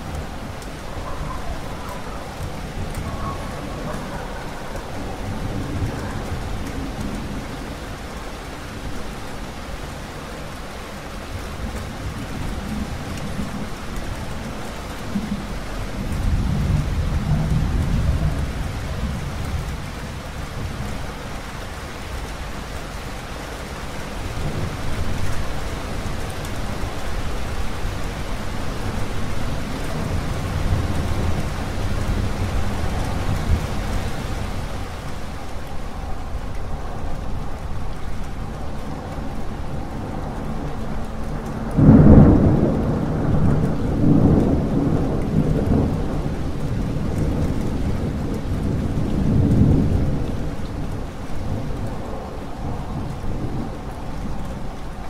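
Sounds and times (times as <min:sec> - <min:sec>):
heavy rain: 0:00.0 - 0:55.0
deep rolling thunder: 0:14.4 - 0:21.2, 0:39.7 - 0:54.4.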